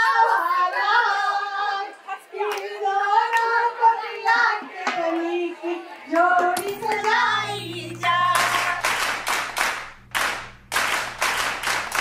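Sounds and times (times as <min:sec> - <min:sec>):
people clapping in rhythm: 0:02.4 - 0:05.3, 0:06.1 - 0:12.0
person singing: 0:04.3 - 0:09.1
low steady hum: 0:06.5 - 0:12.0.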